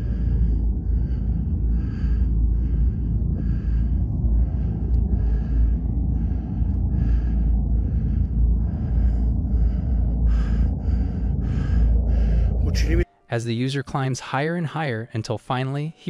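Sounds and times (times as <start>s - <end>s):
heavy rhythmic breathing: 0.0s - 13.1s
steady low rumble: 0.0s - 13.1s.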